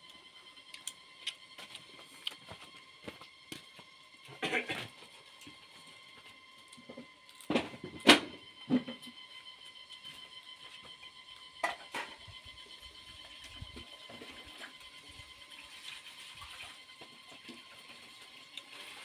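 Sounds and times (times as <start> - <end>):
chewing and crunching food: 0.0 - 7.5.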